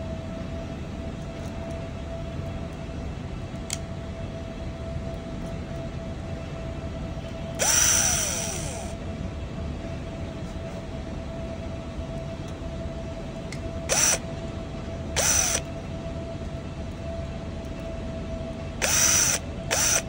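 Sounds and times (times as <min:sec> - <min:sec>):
steady faint hum: 0:00.0 - 0:20.0
cordless drill spinning in bursts: 0:07.6 - 0:09.0, 0:13.9 - 0:14.2, 0:15.2 - 0:15.7, 0:18.8 - 0:20.0.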